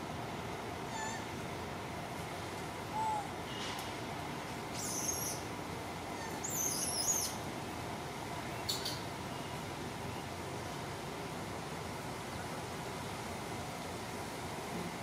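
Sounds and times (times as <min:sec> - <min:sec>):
low hoot: 0:02.9 - 0:03.4
high-pitched chirping squeals: 0:06.2 - 0:07.4.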